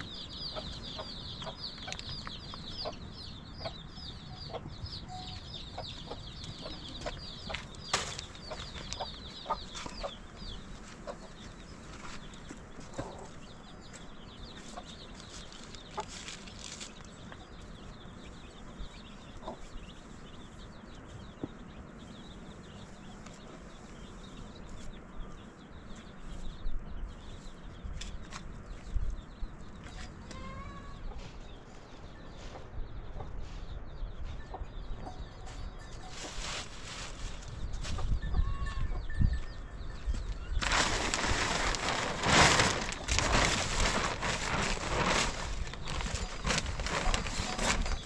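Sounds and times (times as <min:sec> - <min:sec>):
chickens clucking: 0:00.0 - 0:25.6, 0:29.6 - 0:39.4
plastic sheet rustling: 0:36.1 - 0:37.5, 0:40.6 - 0:48.0.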